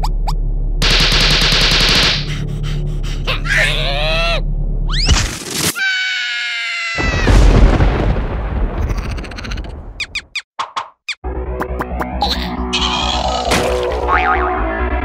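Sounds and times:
cartoon falling cry: 0:03.2 - 0:07.6, 0:08.7 - 0:10.1, 0:12.2 - 0:13.9
long high-pitched scream: 0:05.8 - 0:07.4
loud boom: 0:07.0 - 0:09.0.

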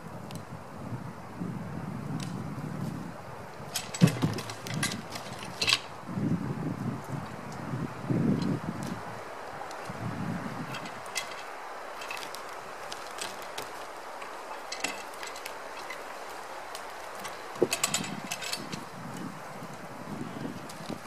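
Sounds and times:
dull thuds of shifting logs: 0:03.7 - 0:05.9.

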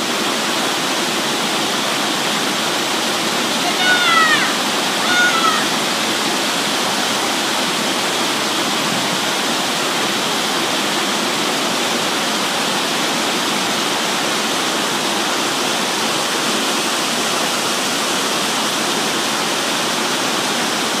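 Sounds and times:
waterfall and stream rushing: 0:00.0 - 0:21.0.

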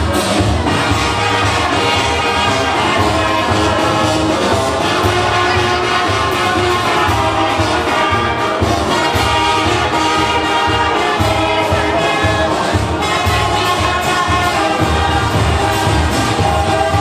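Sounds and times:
people singing: 0:09.3 - 0:17.0.

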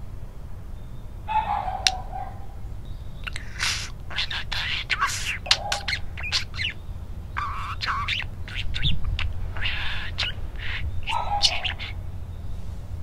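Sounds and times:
steady low rumble: 0:00.0 - 0:13.0
budgerigar chirping and warbling: 0:01.3 - 0:12.3.

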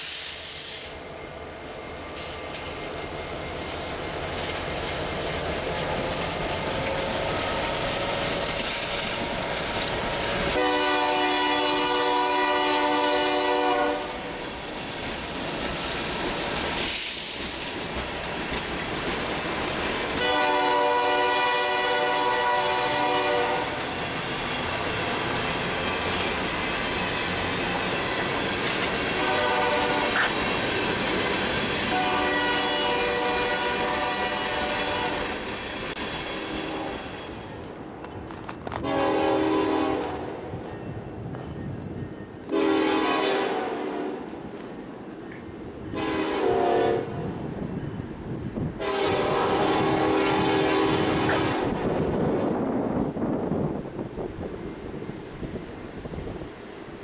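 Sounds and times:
freight train rolling past: 0:00.0 - 0:57.0
locomotive horn chord: 0:10.5 - 0:14.4, 0:20.2 - 0:23.8, 0:29.2 - 0:30.3, 0:31.9 - 0:35.2, 0:38.8 - 0:40.3, 0:42.5 - 0:44.2, 0:45.9 - 0:47.2, 0:48.8 - 0:51.8.

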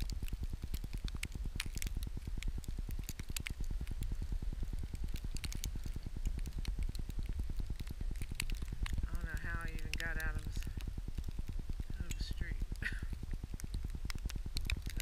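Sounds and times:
light ticks: 0:00.0 - 0:15.0
wind buffeting the microphone: 0:00.0 - 0:15.0.

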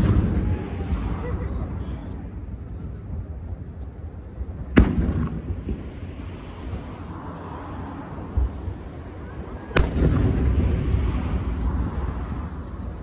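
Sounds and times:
firework booms: 0:00.0 - 0:03.4, 0:04.5 - 0:07.0, 0:09.5 - 0:12.9
rolling rumble: 0:00.0 - 0:13.0.

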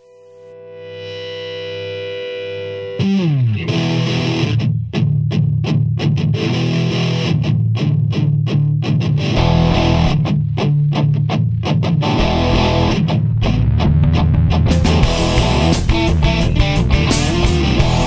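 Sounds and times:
distorted electric guitar riff: 0:00.0 - 0:18.0
heavy low bass: 0:09.3 - 0:18.0.

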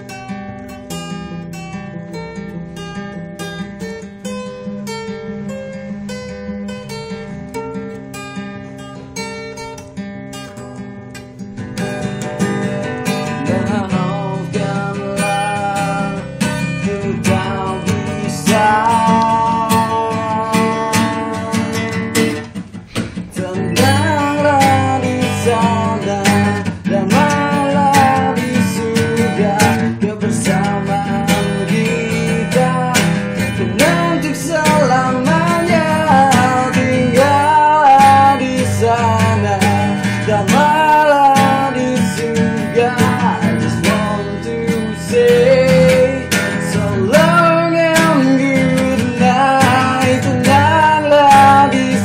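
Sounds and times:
acoustic guitar strumming: 0:00.0 - 0:52.0
man singing: 0:12.4 - 0:52.0.

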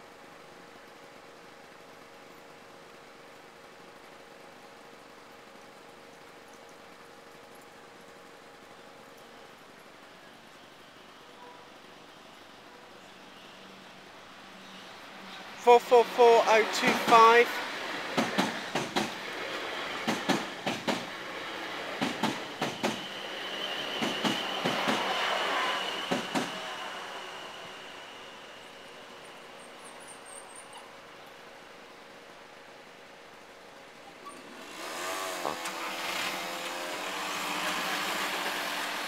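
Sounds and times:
steady rushing hiss: 0:00.0 - 0:39.0
road traffic moving: 0:14.3 - 0:29.7, 0:34.4 - 0:39.0
train wheels clacking on rail joints: 0:16.7 - 0:26.6.

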